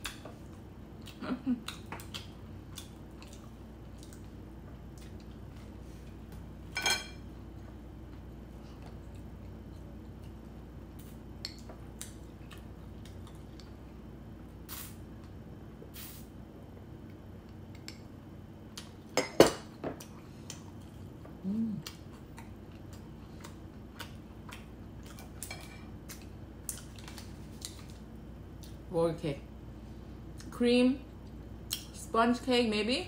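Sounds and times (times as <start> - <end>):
person humming: 21.4 - 22.0.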